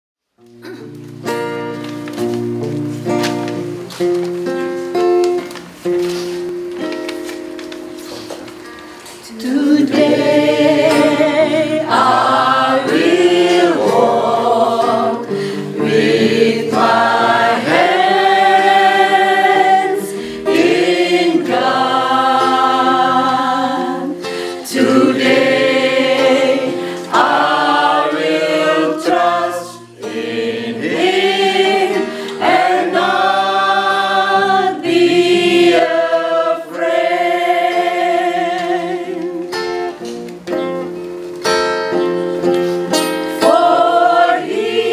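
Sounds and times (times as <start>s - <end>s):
acoustic guitar: 0.2s - 44.9s
mixed choir singing: 9.3s - 39.6s, 43.2s - 44.9s.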